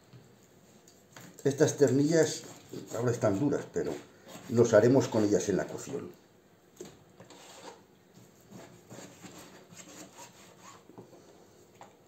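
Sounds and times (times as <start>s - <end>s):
knife cutting on plastic board: 7.2s - 7.8s.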